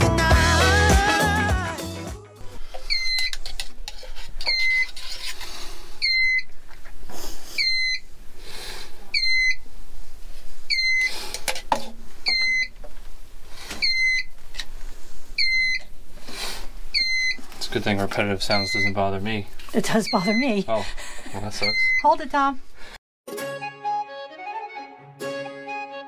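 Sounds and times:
electronic alarm beeper chirping: 0:02.9 - 0:03.3, 0:06.0 - 0:06.5, 0:07.6 - 0:08.0, 0:09.2 - 0:09.6, 0:10.7 - 0:11.1, 0:12.3 - 0:12.7, 0:13.8 - 0:14.3, 0:15.4 - 0:15.8, 0:17.0 - 0:17.4, 0:18.5 - 0:19.0, 0:20.0 - 0:20.6, 0:21.6 - 0:22.2.

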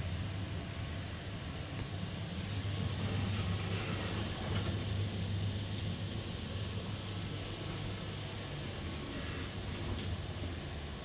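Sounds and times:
elevator mechanical hum: 0:00.0 - 0:11.0.

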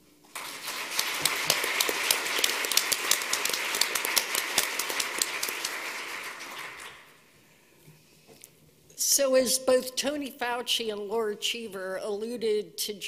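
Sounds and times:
audience applauding: 0:00.2 - 0:07.2.

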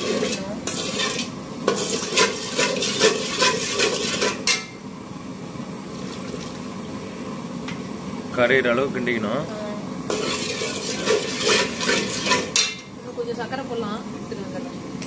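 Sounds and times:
metal ladle scraping a pot: 0:00.0 - 0:04.7, 0:10.1 - 0:12.9.

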